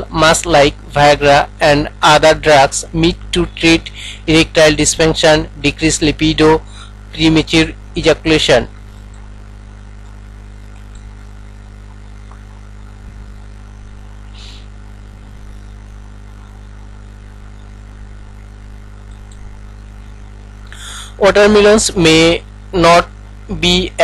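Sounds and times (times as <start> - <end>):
electrical mains hum: 0.0 - 24.0
faint hiss: 14.2 - 14.9, 20.6 - 22.1.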